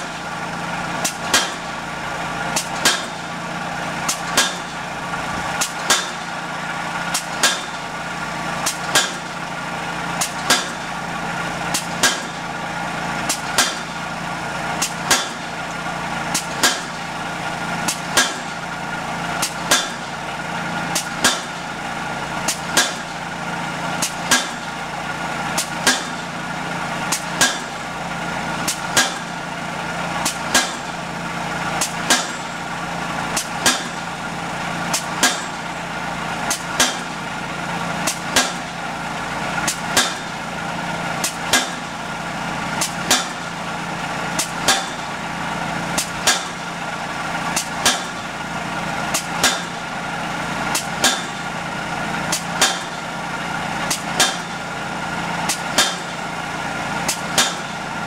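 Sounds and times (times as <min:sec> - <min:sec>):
engine hum: 0:00.0 - 0:58.0
pile hammer blows: 0:01.0 - 0:01.7, 0:02.6 - 0:03.3, 0:04.0 - 0:04.8, 0:05.6 - 0:06.4, 0:07.1 - 0:07.9, 0:08.6 - 0:09.4, 0:10.2 - 0:10.9, 0:11.7 - 0:12.4, 0:19.4 - 0:20.1, 0:28.6 - 0:29.3, 0:30.2 - 0:31.0, 0:31.8 - 0:32.6, 0:34.9 - 0:35.7, 0:36.5 - 0:37.2, 0:38.0 - 0:38.8, 0:39.6 - 0:40.4, 0:41.2 - 0:41.9, 0:42.8 - 0:43.5, 0:44.4 - 0:45.2, 0:46.0 - 0:46.6, 0:47.6 - 0:48.3, 0:49.1 - 0:49.9, 0:50.7 - 0:51.5, 0:52.3 - 0:53.0, 0:53.9 - 0:54.6, 0:55.5 - 0:56.2, 0:57.1 - 0:57.8.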